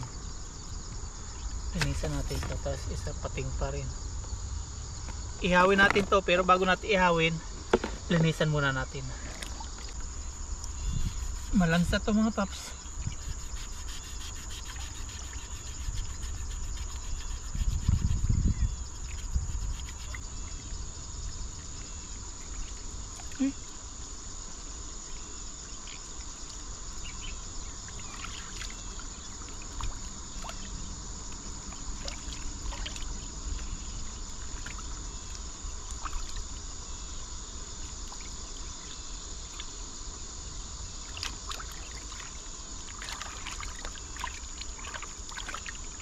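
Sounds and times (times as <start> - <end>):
high insect drone: 0.0 - 46.0
splashes and knocks: 7.6 - 8.2, 31.7 - 33.7, 34.4 - 36.5, 41.0 - 46.0
river water flowing: 27.8 - 36.7, 41.0 - 46.0.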